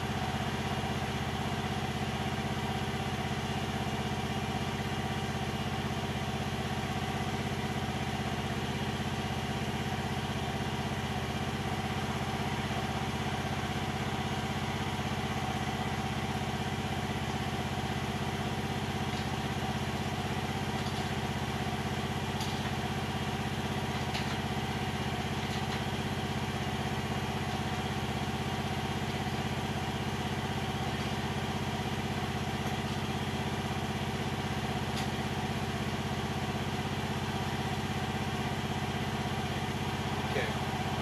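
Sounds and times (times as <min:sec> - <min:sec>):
excavator engine idling: 0:00.0 - 0:41.0.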